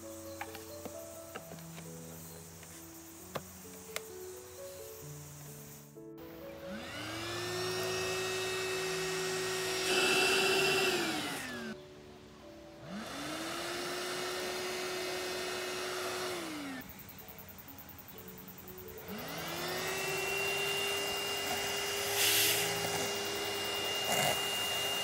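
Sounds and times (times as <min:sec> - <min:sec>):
handheld vacuum motor whining: 0:06.6 - 0:11.8, 0:12.8 - 0:16.8, 0:19.0 - 0:25.0.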